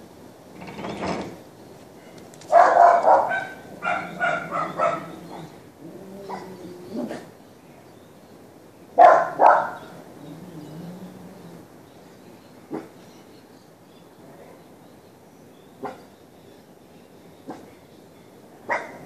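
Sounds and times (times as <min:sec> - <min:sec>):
dog barking: 0:02.5 - 0:05.5, 0:09.0 - 0:09.9, 0:15.8 - 0:16.1, 0:18.7 - 0:19.0.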